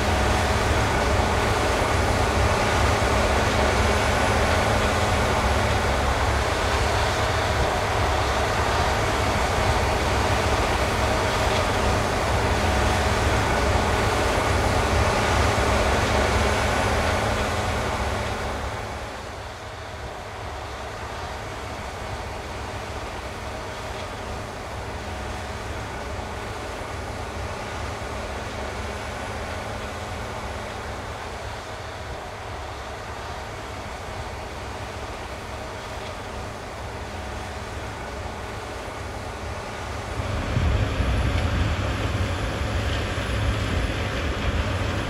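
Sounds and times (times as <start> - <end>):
combine harvester engine drone: 0.0 - 45.0
threshing machinery hum: 0.0 - 45.0.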